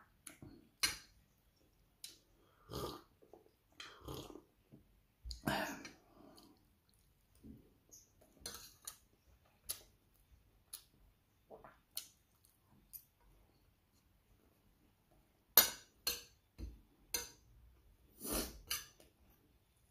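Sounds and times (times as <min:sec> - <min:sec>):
quiet chewing: 0:01.3 - 0:14.1.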